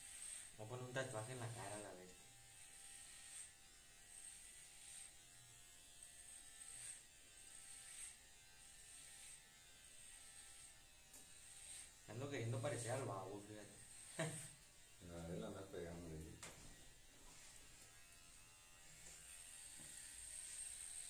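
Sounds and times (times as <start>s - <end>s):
electric hair clippers buzzing: 0.0s - 21.0s.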